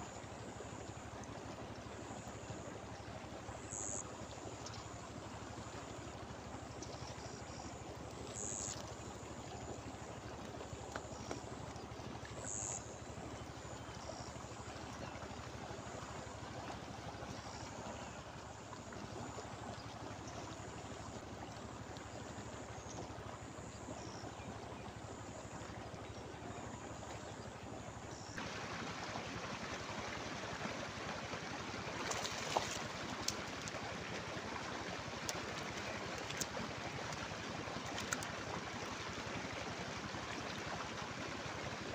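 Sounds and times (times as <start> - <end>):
river water rushing over rapids: 28.4 - 39.3
faint clicks: 32.0 - 33.8, 35.2 - 38.4.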